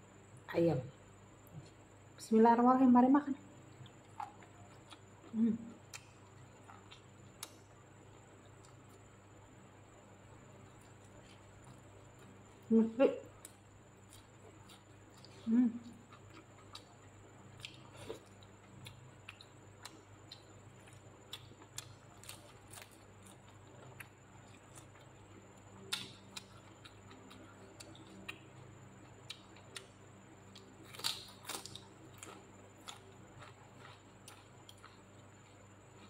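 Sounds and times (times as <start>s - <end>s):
faint steady hum: 0.0s - 36.0s
chewing clicks and smacks: 25.8s - 36.0s.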